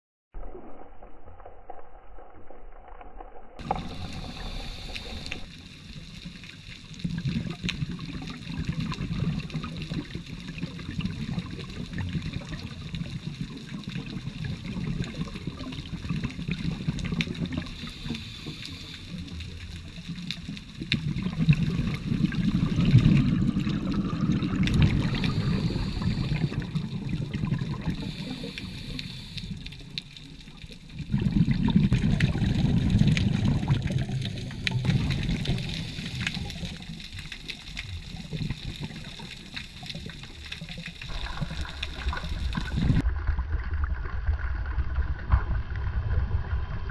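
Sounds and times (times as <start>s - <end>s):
underwater bubbling rumble: 0.4s - 46.9s
regulator breathing hiss: 3.7s - 5.5s, 17.7s - 19.4s, 25.0s - 26.7s, 27.9s - 29.9s, 35.4s - 37.6s.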